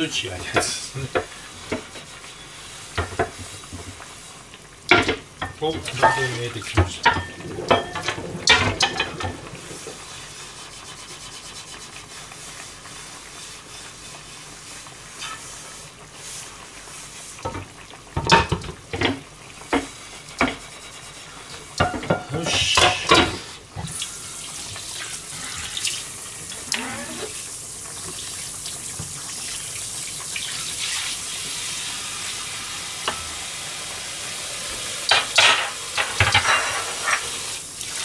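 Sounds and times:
frying pan being scrubbed: 0:00.0 - 0:38.0
tap water rushing: 0:00.0 - 0:38.0
pan knocking against sink: 0:04.9 - 0:09.4, 0:21.8 - 0:23.4, 0:35.1 - 0:37.2.

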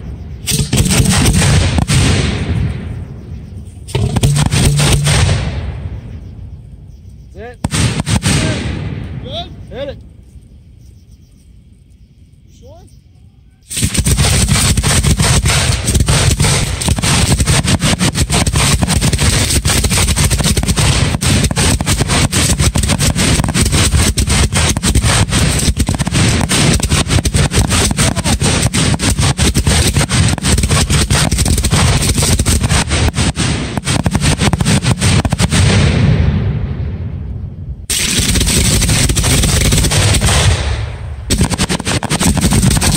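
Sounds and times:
fireworks bangs and crackles: 0:00.0 - 0:06.2, 0:07.3 - 0:09.6, 0:13.6 - 0:42.9.

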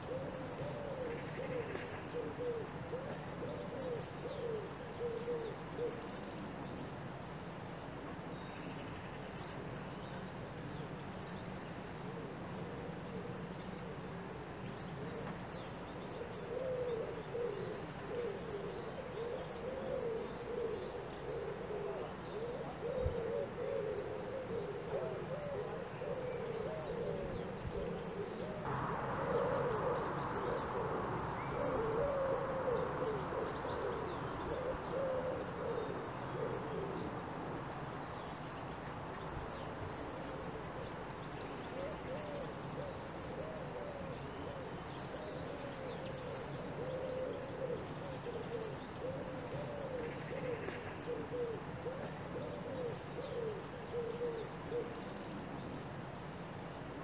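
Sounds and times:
birds cooing: 0:00.0 - 0:06.5, 0:11.9 - 0:55.8
soft hiss: 0:26.0 - 0:46.9.

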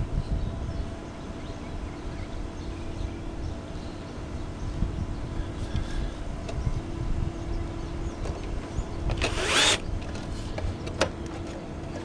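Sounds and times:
cordless drill whirring: 0:09.1 - 0:10.2.

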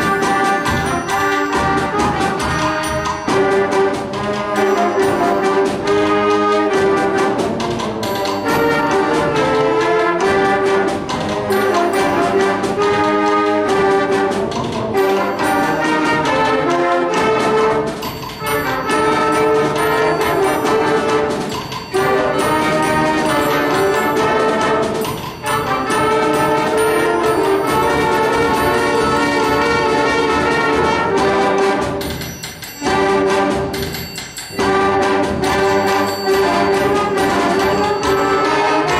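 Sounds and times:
concert band playing: 0:00.0 - 0:38.9.

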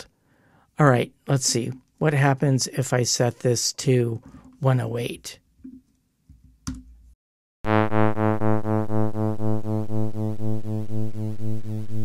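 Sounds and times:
buzzy pulsing synthesized tone: 0:07.6 - 0:12.0.

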